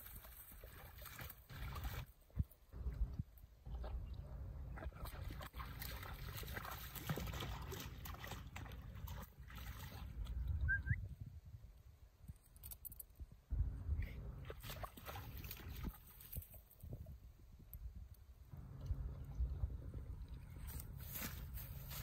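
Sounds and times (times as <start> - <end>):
dog splashing through puddle: 0.0 - 2.1, 4.8 - 10.3, 14.4 - 16.8.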